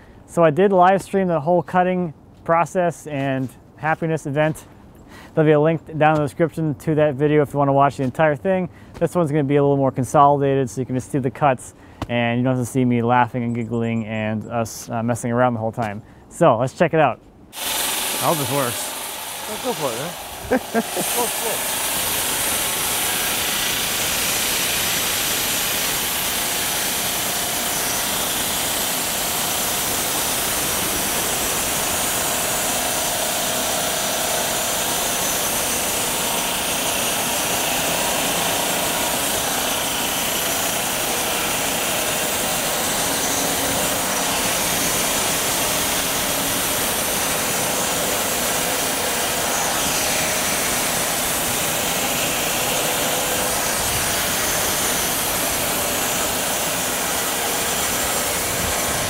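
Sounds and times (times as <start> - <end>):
band saw cutting log: 17.5 - 59.0.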